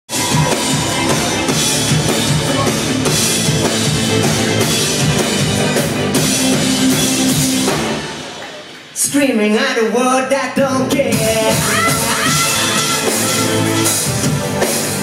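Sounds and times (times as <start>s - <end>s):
bass drum and cymbals beat: 0.1s - 8.4s, 10.8s - 15.0s
live band playing: 0.1s - 15.0s.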